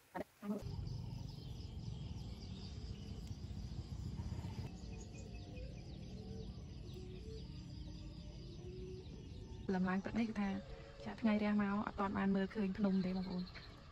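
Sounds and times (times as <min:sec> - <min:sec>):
high-pitched insect chirps: 0:00.6 - 0:09.8
low rumble: 0:00.6 - 0:13.9.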